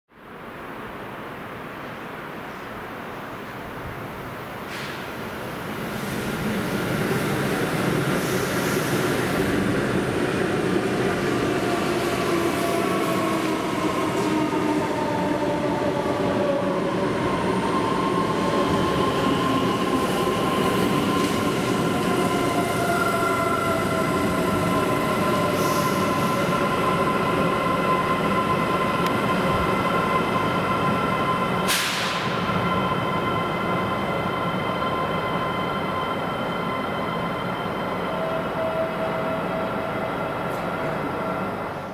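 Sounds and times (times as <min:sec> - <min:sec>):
multi-tone train whine: 0:00.1 - 0:41.9
train wheel and rail noise: 0:00.2 - 0:41.9
brief hiss: 0:04.6 - 0:05.2, 0:31.7 - 0:32.4.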